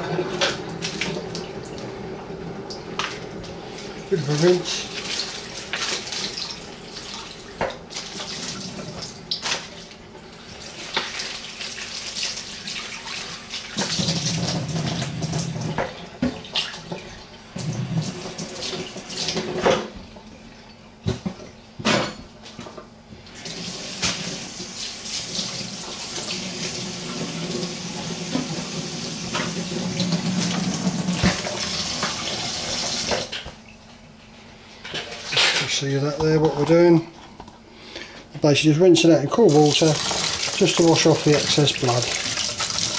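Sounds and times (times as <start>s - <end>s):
tap water running into sink: 10.6s - 19.8s, 23.4s - 33.4s, 39.4s - 42.9s.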